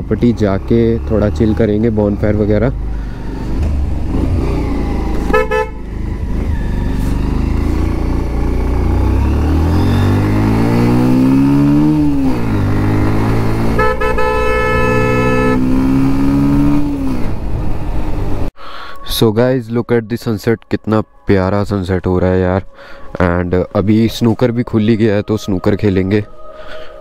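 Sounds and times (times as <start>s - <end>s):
motorcycle engine accelerating: 0.0s - 18.5s
vehicle horn tooting: 5.2s - 5.8s, 13.6s - 15.8s.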